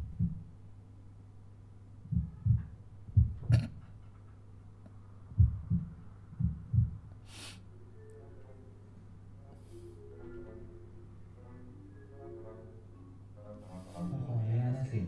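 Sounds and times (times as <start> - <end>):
heartbeat thuds: 0.0 - 0.6, 2.0 - 4.0, 5.2 - 7.2
steady low hum: 0.0 - 15.0.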